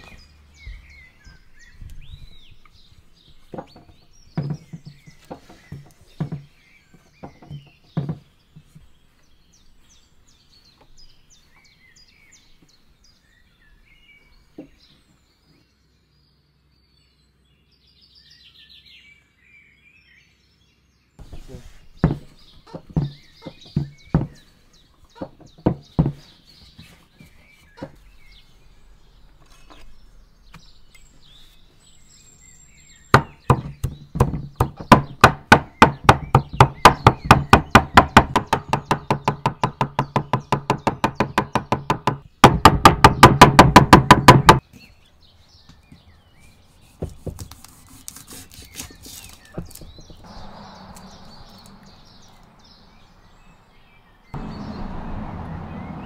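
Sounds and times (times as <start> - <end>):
cleaver chopping on wooden board: 22.0 - 24.4, 33.1 - 44.6.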